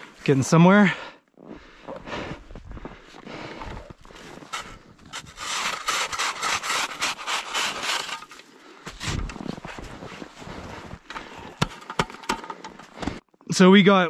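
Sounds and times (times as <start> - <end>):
snow blocks being scraped: 4.1 - 11.7.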